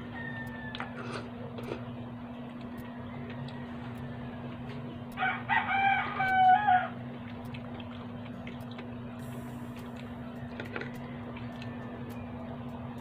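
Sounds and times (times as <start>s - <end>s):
rooster crowing: 0.0s - 1.3s, 2.8s - 4.5s, 5.1s - 7.0s, 10.2s - 12.5s
steady low hum: 0.0s - 13.0s.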